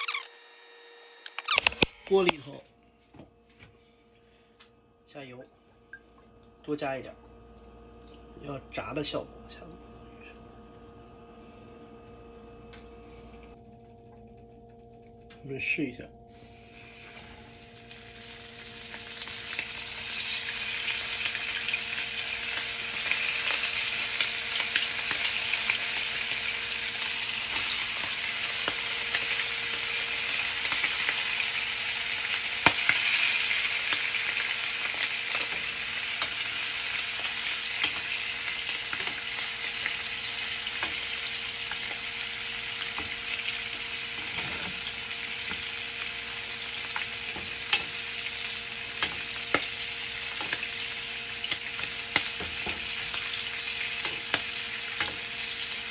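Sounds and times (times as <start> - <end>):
food sizzling in hot oil: 16.3 - 55.9.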